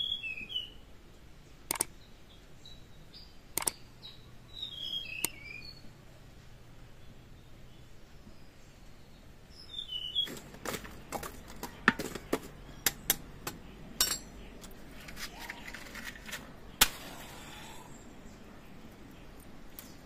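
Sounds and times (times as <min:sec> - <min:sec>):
sharp knocks and clicks: 0:03.6 - 0:03.8.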